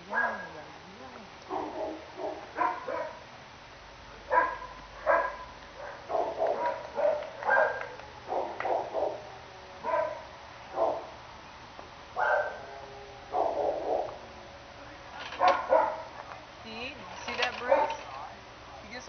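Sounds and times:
dogs barking: 0.0s - 0.7s, 1.4s - 3.3s, 4.2s - 11.2s, 12.1s - 14.4s, 15.2s - 16.5s, 17.4s - 18.1s.

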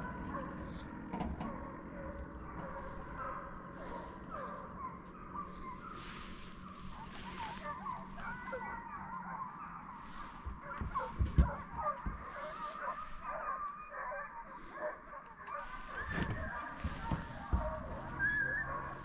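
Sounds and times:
hounds baying in the distance: 0.0s - 19.0s
low bumps: 15.7s - 19.0s.

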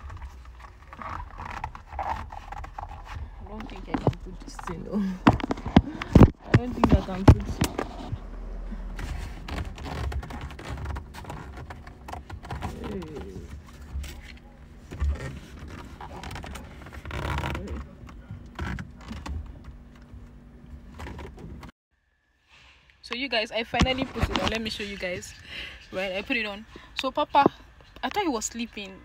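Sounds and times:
steering wheel cover scraping: 0.0s - 21.7s.

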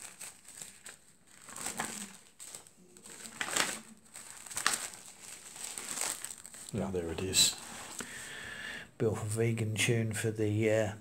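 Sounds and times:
plastic sleeves and pages rustling: 0.0s - 8.2s.

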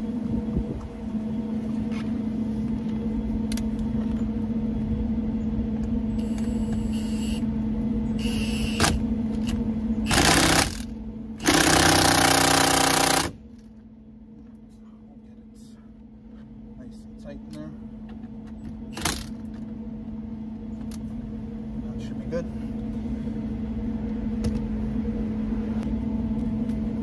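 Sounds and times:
steady low hum: 0.0s - 27.0s
power tool bursts: 10.1s - 13.4s.

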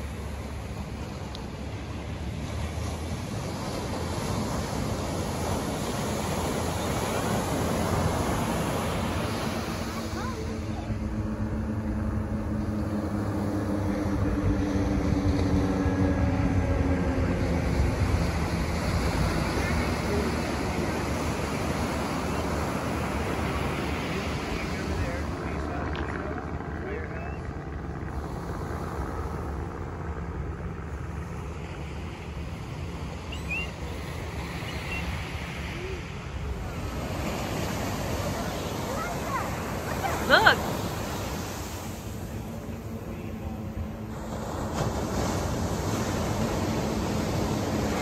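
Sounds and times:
piston-engine planes droning overhead: 0.0s - 48.0s
rumbling wind: 0.0s - 48.0s
surf: 0.0s - 48.0s
faint high chirps: 33.3s - 33.9s, 34.5s - 35.2s.

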